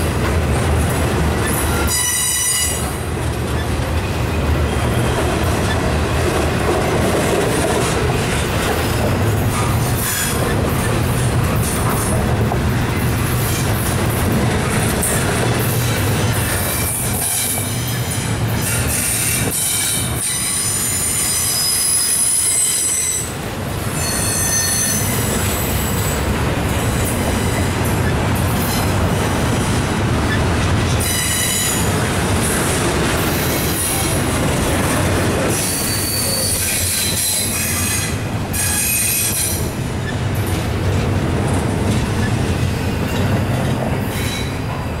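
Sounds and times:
train wheels rumbling on rails: 0.0 - 45.0
high-pitched wheel squeal: 18.6 - 23.3, 24.0 - 25.9, 35.5 - 39.6.

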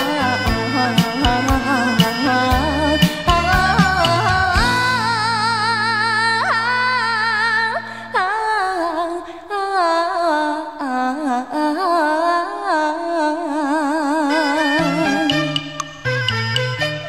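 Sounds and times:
folk melody with vibrato: 0.0 - 7.3, 14.1 - 17.0.

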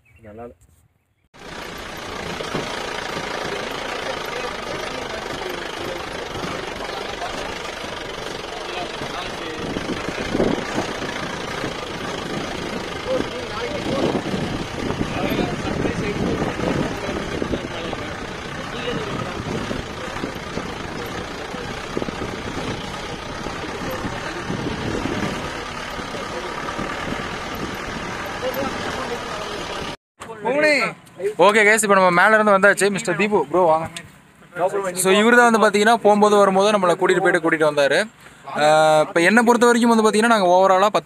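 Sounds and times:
knocks from rough ground: 1.4 - 13.1
jeep engine driving on dirt: 1.4 - 30.0.

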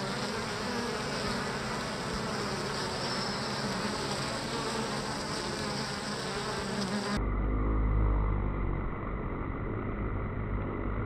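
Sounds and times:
honey bees buzzing: 0.0 - 7.2.

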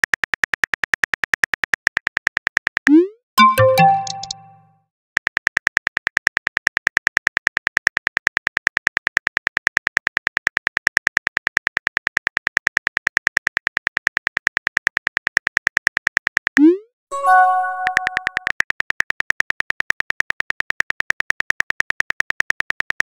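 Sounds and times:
phone keyboard typing clicks: 3.4 - 4.6, 17.8 - 18.6.

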